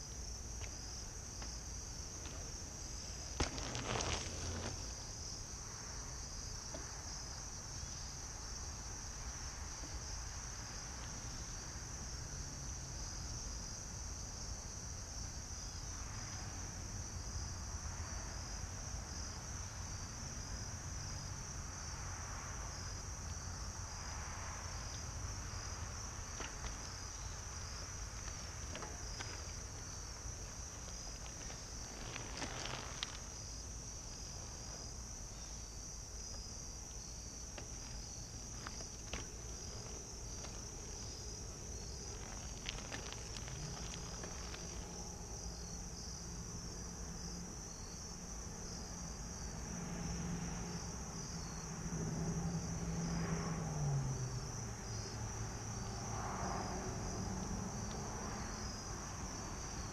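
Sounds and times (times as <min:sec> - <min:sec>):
bicycle tyres crunching on gravel: 0:00.0 - 0:07.1, 0:23.8 - 0:45.7
crickets trilling: 0:00.0 - 0:59.9.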